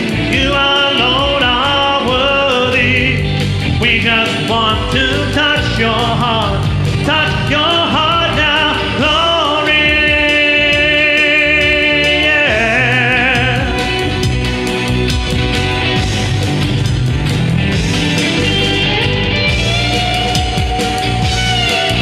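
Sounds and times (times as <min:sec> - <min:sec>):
person singing: 0:00.0 - 0:16.8
band with guitars and keyboard: 0:00.0 - 0:22.0.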